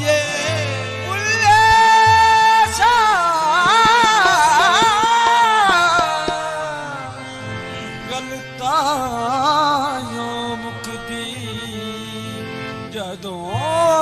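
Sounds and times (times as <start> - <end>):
harmonium drone: 0.0 - 14.0
man singing melismatic phrase: 0.3 - 7.2
sharp percussion strokes: 3.6 - 6.6.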